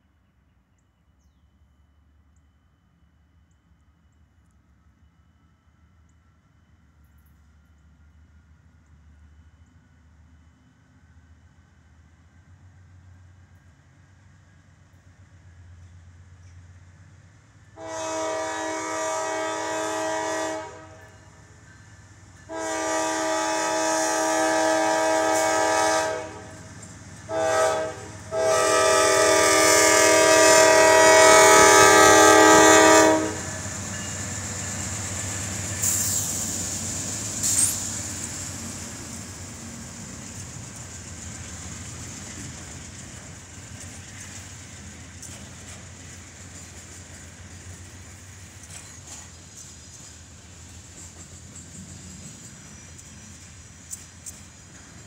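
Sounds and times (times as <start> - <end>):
train wheels on rails: 5.7 - 55.0
locomotive air horn blasts: 17.8 - 21.2, 22.5 - 26.6, 27.3 - 33.7
high wheel squeals: 37.4 - 38.0, 51.0 - 55.0.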